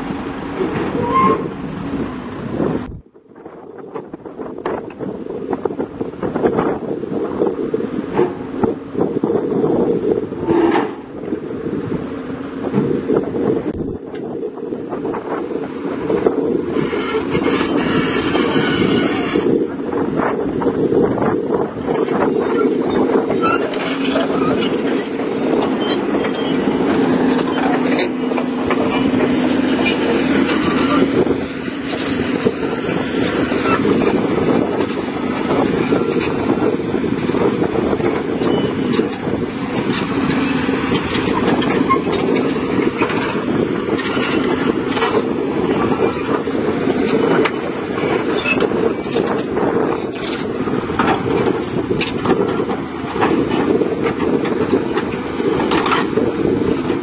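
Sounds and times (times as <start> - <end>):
diesel engine running: 4.2 - 57.0
track links clattering: 21.8 - 57.0.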